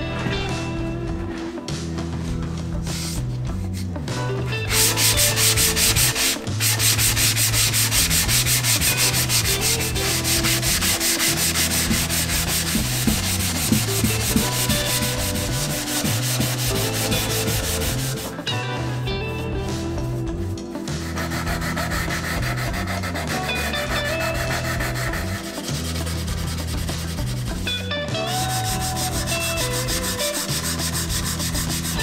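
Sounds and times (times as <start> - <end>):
sanding block rasping on wood: 4.6 - 18.4, 20.8 - 27.6, 28.3 - 32.0.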